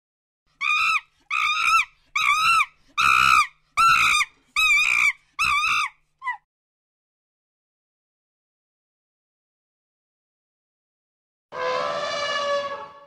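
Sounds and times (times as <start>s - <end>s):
macaque screaming calls: 0.6s - 6.4s.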